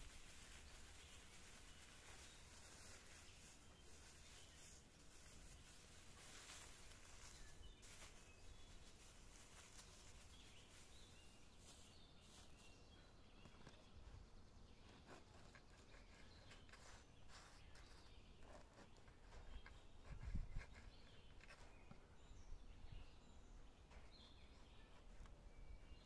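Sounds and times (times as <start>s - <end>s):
faint bird chirps: 0.3s - 26.0s.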